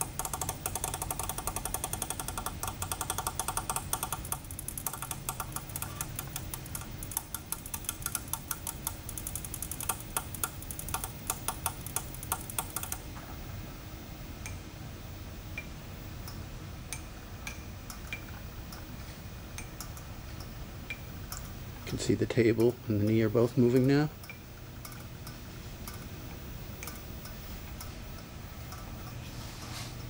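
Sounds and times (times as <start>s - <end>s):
rapid mechanical ticking: 0.0s - 13.1s, 19.6s - 26.1s
machine drives humming: 0.0s - 30.0s.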